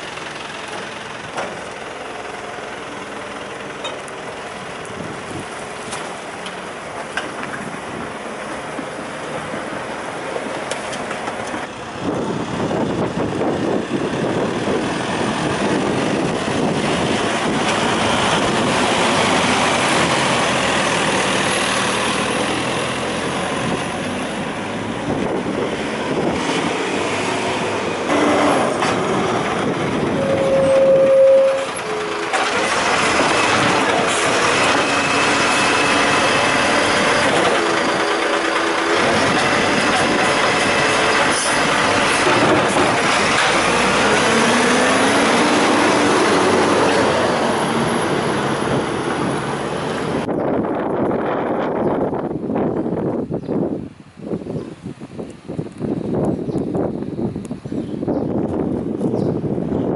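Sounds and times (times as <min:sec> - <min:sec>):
dense machinery noise: 0:00.0 - 0:53.2
rubbish truck engine running: 0:00.0 - 0:53.9
brief steady tone: 0:30.2 - 0:31.7.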